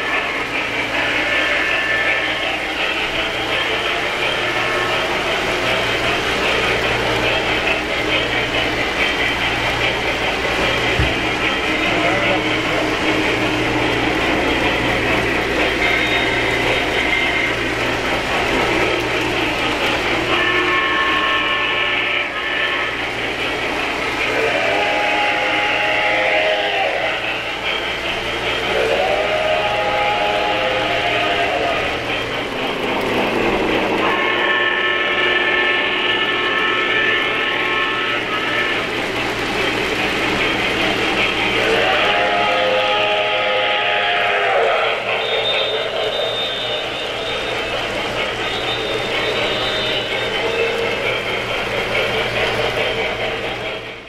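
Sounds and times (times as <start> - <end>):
model train wheels and motors whirring: 0.0 - 54.0.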